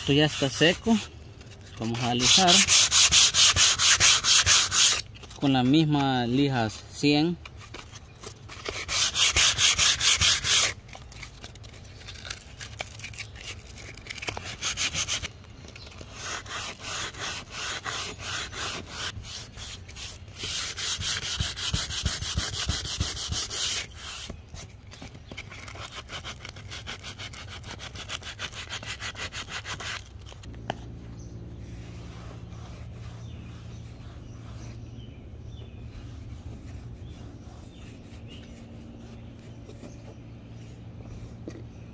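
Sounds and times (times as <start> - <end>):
hand sanding scratchy strokes: 0.0 - 7.1, 7.8 - 24.7, 25.3 - 41.5
low steady hum: 29.4 - 41.9.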